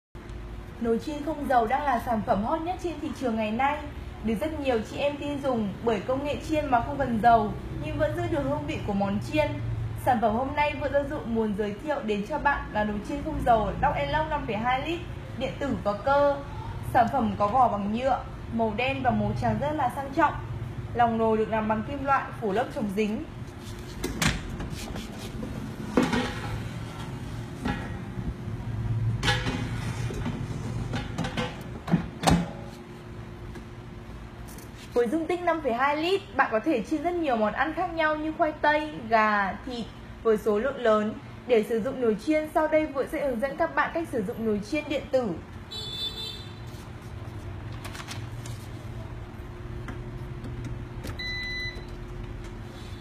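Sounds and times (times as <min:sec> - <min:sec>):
high electronic beep: 0:51.2 - 0:51.9.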